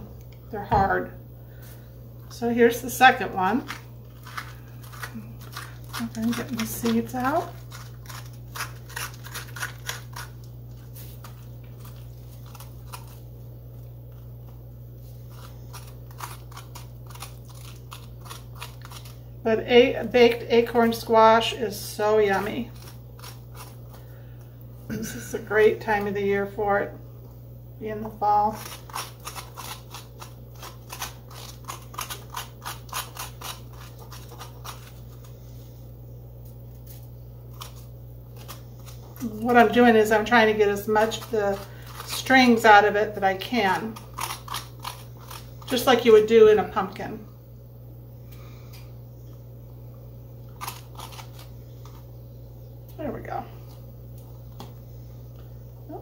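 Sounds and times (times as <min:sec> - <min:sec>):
spoon scraping squash: 0:02.3 - 0:13.3, 0:15.0 - 0:24.1, 0:28.1 - 0:35.7, 0:36.8 - 0:46.9, 0:50.4 - 0:52.2.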